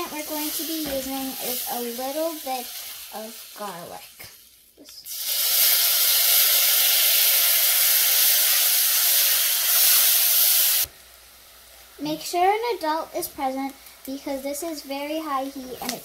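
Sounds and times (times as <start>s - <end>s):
garlic sizzling in butter: 0.0s - 16.0s.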